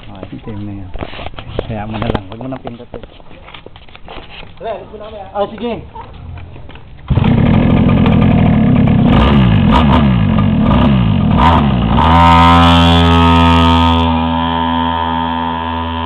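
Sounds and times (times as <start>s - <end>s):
mini atv engine revving: 7.1s - 16.0s.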